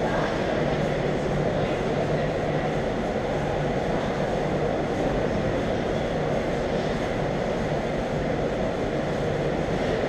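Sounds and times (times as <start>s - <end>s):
droning room noise: 0.0s - 10.0s.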